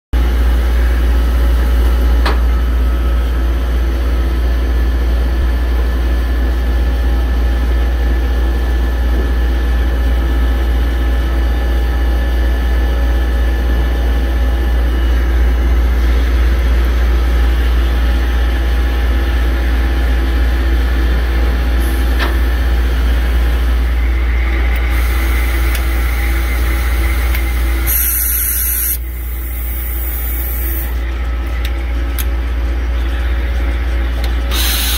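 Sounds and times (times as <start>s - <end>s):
machine low hum: 0.2s - 34.9s
hiss: 27.9s - 30.8s, 34.5s - 34.9s.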